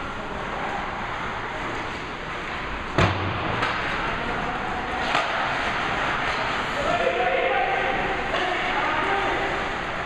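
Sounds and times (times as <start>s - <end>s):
arena noise: 0.0s - 10.0s
puck banging rink boards: 3.0s - 4.0s, 4.9s - 7.1s.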